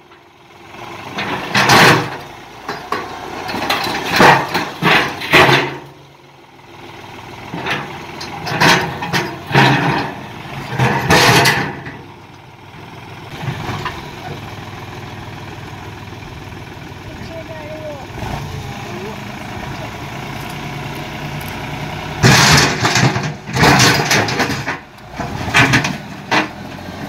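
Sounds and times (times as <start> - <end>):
tractor engine running under load: 0.0 - 27.0
loader bucket scraping over rock: 1.2 - 5.9.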